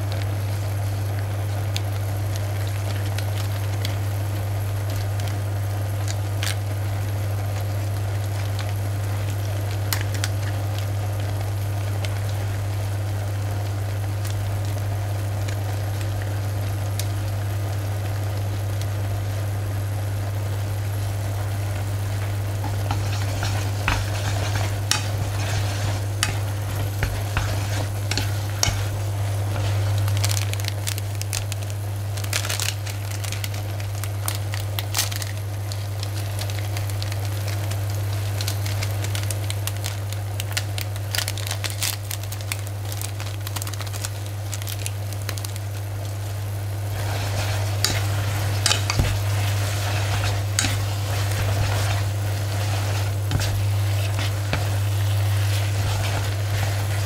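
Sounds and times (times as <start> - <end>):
noodles sizzling in frying pan: 0.0 - 57.0
low hum: 19.0 - 34.4
sachet crinkling: 21.7 - 57.0
chopsticks clicking: 22.6 - 31.6, 47.8 - 49.0.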